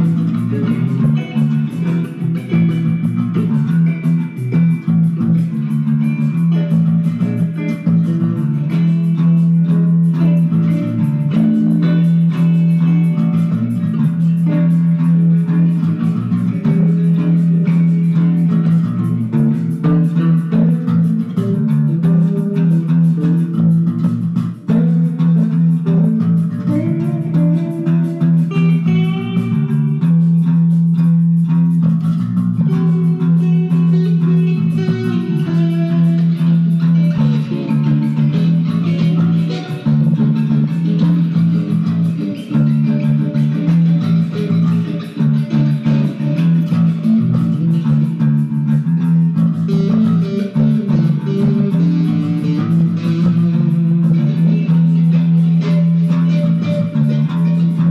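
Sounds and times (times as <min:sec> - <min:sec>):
electric guitar melody: 0:00.0 - 0:57.9.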